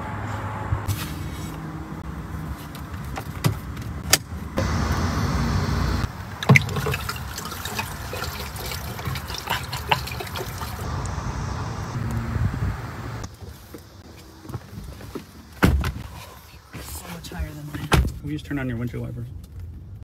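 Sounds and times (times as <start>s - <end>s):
liquid pouring from glass bottle: 6.4s - 10.8s.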